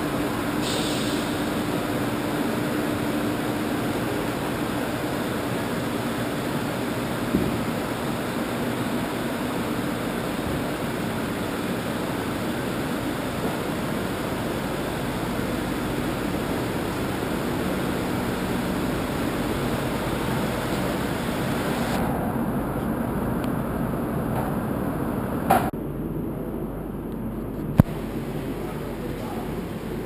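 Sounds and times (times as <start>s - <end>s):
printing presses humming: 0.0s - 22.6s.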